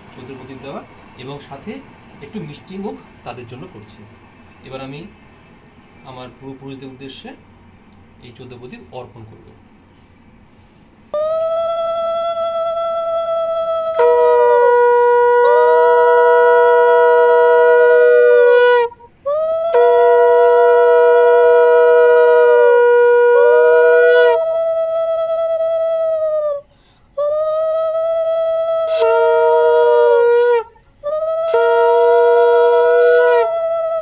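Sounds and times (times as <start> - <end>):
conch shells blown: 10.5 - 34.0.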